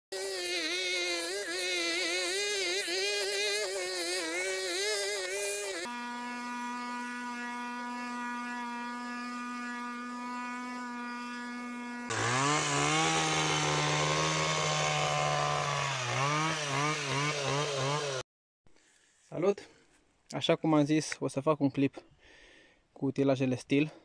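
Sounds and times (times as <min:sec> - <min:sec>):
hedge trimmer engine revving: 0:00.2 - 0:06.8, 0:12.1 - 0:18.2
blower engine running: 0:12.1 - 0:18.2.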